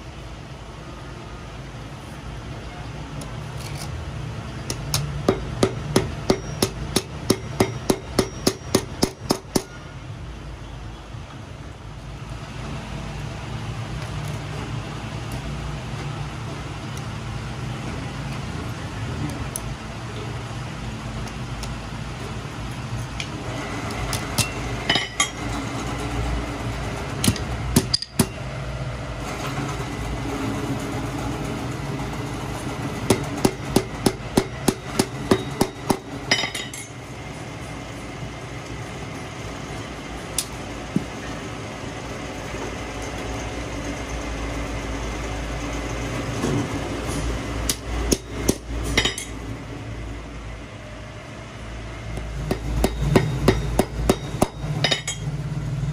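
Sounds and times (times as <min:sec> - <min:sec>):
hammer striking steel: 0:04.7 - 0:09.8, 0:24.4 - 0:25.4, 0:27.2 - 0:28.4, 0:33.1 - 0:36.9, 0:47.7 - 0:49.4, 0:52.4 - 0:55.3.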